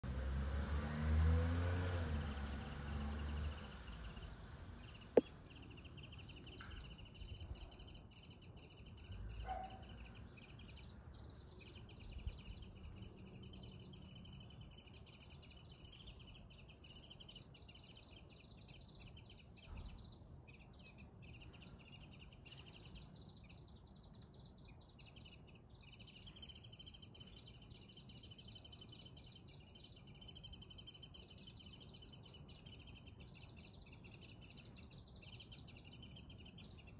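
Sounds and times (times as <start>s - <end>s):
low car rumble: 0.0s - 7.7s
small birds chirping: 1.1s - 36.9s.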